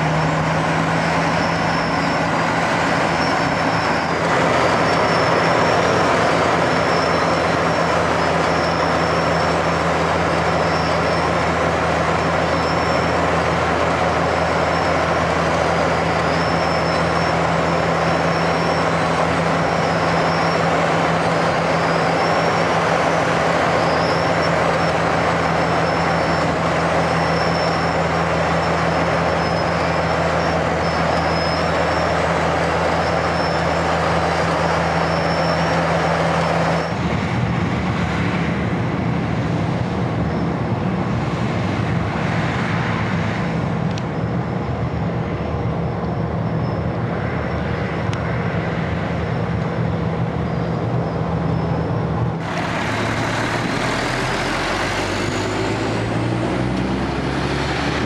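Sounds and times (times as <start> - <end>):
high-pitched squeals: 0.0 - 37.0, 50.2 - 58.0
diesel engine humming: 0.0 - 58.0.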